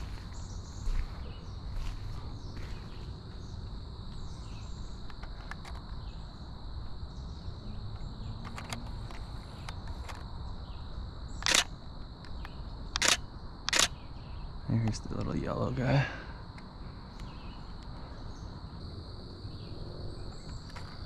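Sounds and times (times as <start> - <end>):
camera shutter click: 11.4 - 11.7, 13.0 - 14.0.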